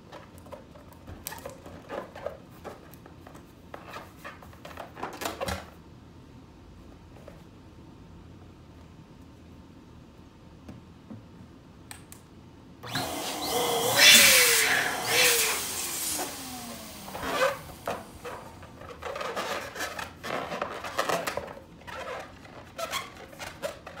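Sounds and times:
electric balloon pump running: 12.8s - 18.7s
rubbery balloon squeaks: 17.1s - 24.0s.

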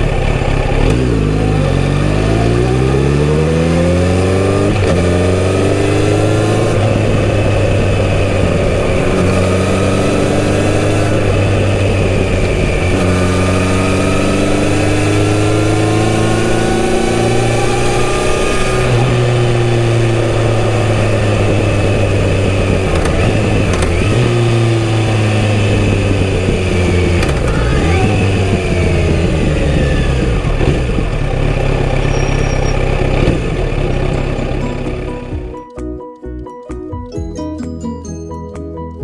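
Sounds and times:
motorcycle engine and exhaust: 0.0s - 35.6s
wind noise: 3.9s - 31.3s.

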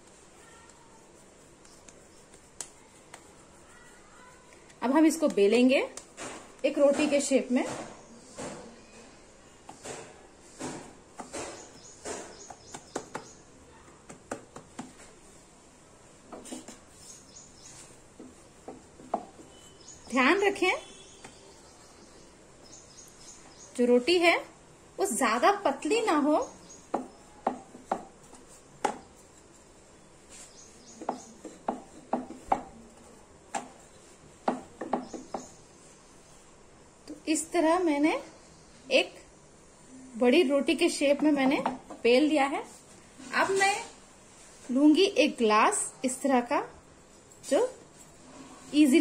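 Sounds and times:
hand patting dough on wood: 0.0s - 8.6s, 9.6s - 15.4s, 16.2s - 22.1s, 25.8s - 35.9s
taps and knocks on board: 9.7s - 13.4s, 14.0s - 15.0s, 26.9s - 28.1s, 34.4s - 35.5s.

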